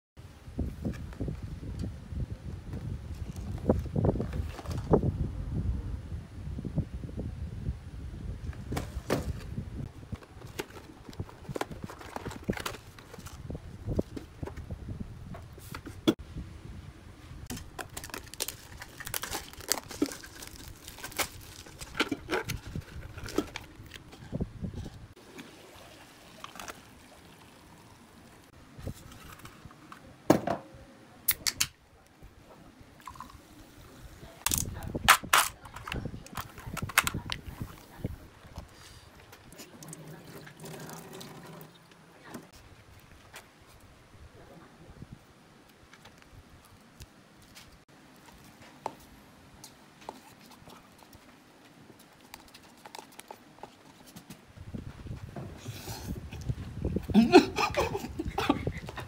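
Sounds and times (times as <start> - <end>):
cola pouring into a glass: 25.3 - 28.2, 33.0 - 33.5
water running into a cup: 33.0 - 33.4, 39.8 - 41.8.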